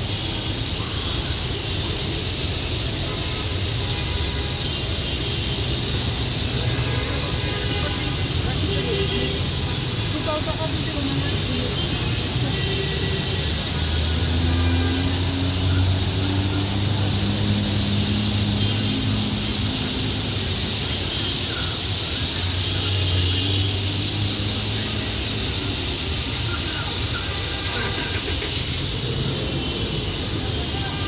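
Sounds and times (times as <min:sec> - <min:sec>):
flock of birds chattering: 0:00.0 - 0:31.0
car engines idling: 0:24.7 - 0:31.0.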